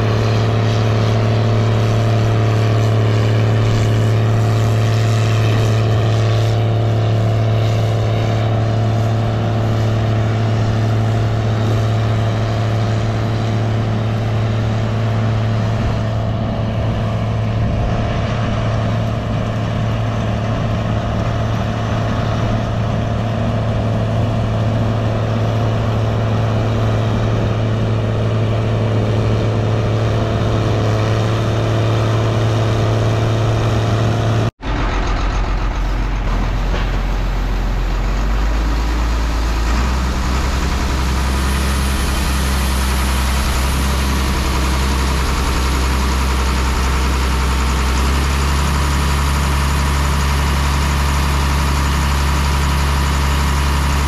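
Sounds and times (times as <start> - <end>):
combine harvester engine running: 0.0 - 54.0.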